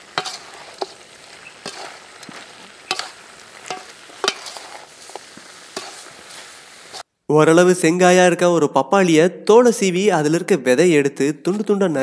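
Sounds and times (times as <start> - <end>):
metal ladle scraping a pan: 0.0 - 7.0
curry sizzling in a pan: 0.0 - 7.1.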